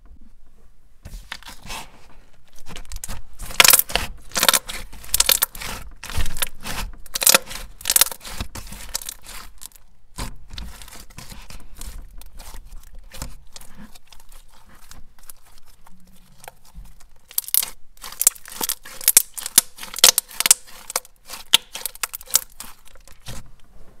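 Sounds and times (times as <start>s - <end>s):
slime squished by hand: 2.6s - 23.5s.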